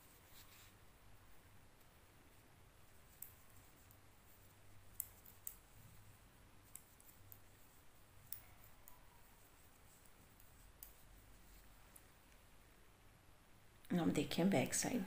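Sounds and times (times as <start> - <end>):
knitting needles clicking: 2.9 - 12.5.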